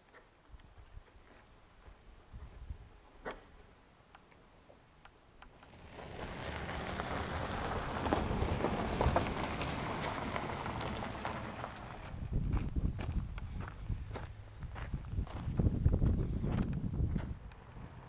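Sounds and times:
footsteps on dry grass and gravel: 0.8s - 2.6s, 8.8s - 17.5s.

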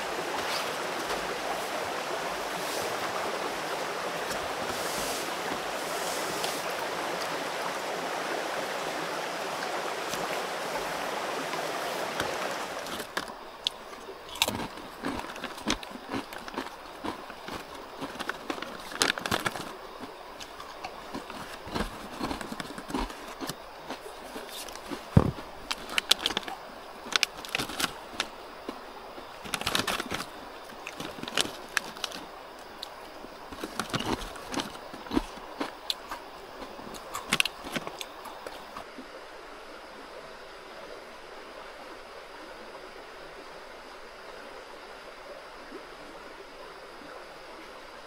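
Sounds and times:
stream running: 0.0s - 48.0s
plastic snack packet crackling: 29.4s - 32.2s.

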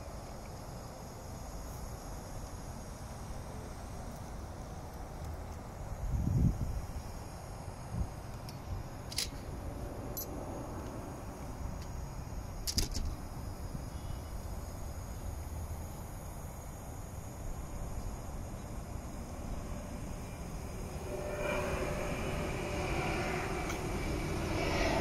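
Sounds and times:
distant jet airliner rumble: 8.0s - 15.3s, 17.2s - 25.0s.

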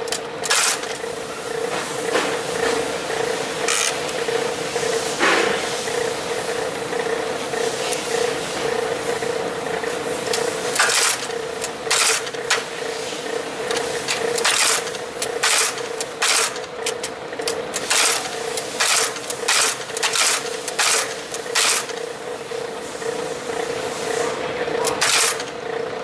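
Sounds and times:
machine motor humming: 0.0s - 26.0s
keystroke stamping metal clunk: 13.7s - 22.0s.

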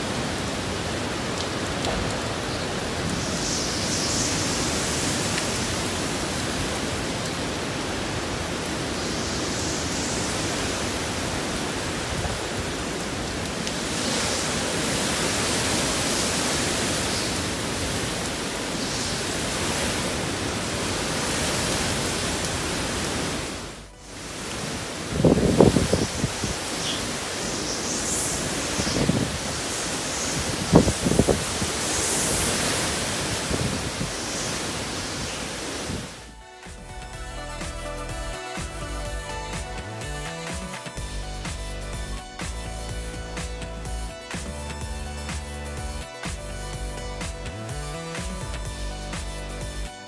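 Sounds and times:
strong wind through palms: 0.0s - 37.7s
wind buffeting microphone: 24.7s - 36.2s.

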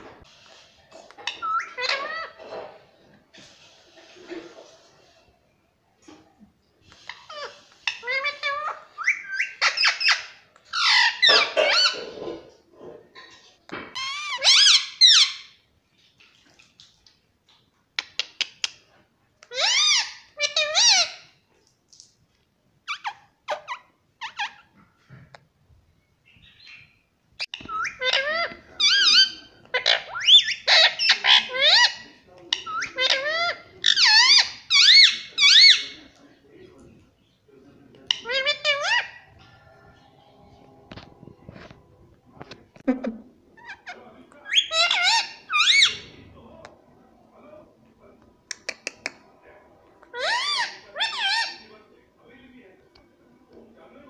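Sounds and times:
parakeet chattering: 1.2s - 2.4s, 27.4s - 36.0s, 43.6s - 46.1s, 50.1s - 51.7s
parakeet chirps and whistles: 9.0s - 10.2s, 27.5s - 31.2s.

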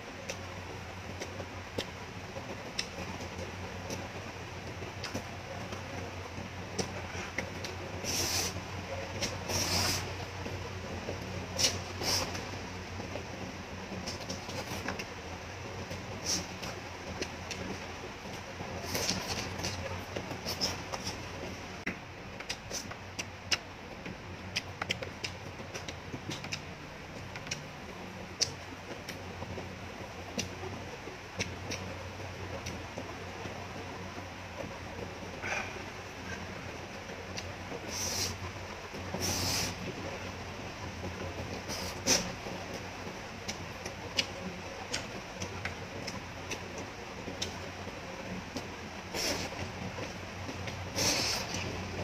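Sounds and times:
steady low hum: 0.0s - 52.0s
person chewing noodles: 18.8s - 21.2s, 50.9s - 51.7s
wet mouth clicks and smacks: 22.4s - 23.7s, 24.6s - 26.7s.

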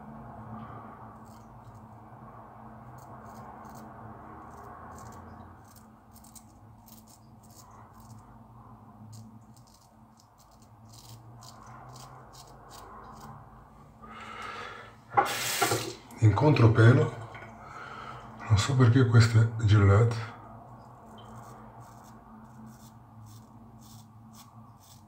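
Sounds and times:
razor scraping stubble: 1.2s - 1.9s, 2.9s - 8.3s, 9.1s - 13.4s, 20.9s - 25.0s.

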